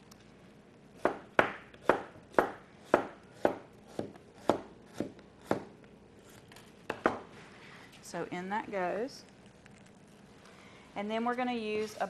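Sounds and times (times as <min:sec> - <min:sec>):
knife chopping on cutting board: 0:01.0 - 0:05.7.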